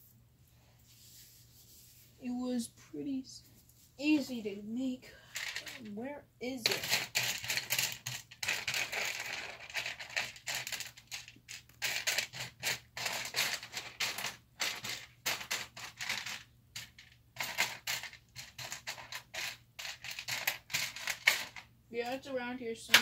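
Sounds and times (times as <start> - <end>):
plastic pieces clattering: 5.3 - 5.9, 6.6 - 22.2.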